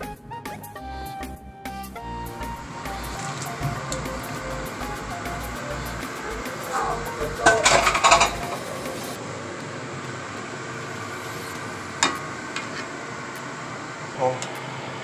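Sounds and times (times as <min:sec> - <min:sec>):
steady kitchen hiss: 0:02.3 - 0:15.0
pots and pans clattering: 0:06.6 - 0:09.1.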